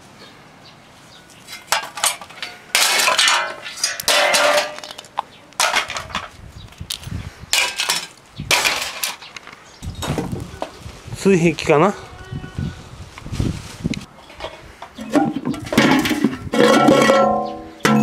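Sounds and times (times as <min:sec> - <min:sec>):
scrap metal and plastic clattering: 0:01.4 - 0:06.4, 0:07.5 - 0:09.4, 0:14.2 - 0:18.0.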